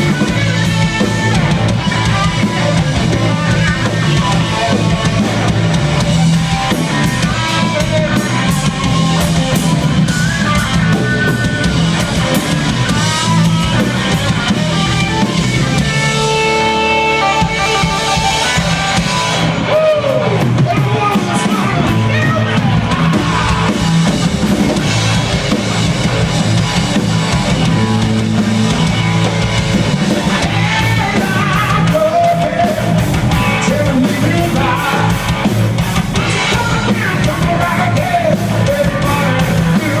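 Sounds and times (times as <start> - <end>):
distorted electric guitars: 0.0 - 40.0
drum kit: 0.0 - 40.0
electric bass: 0.0 - 40.0
lead vocal singing: 30.4 - 40.0.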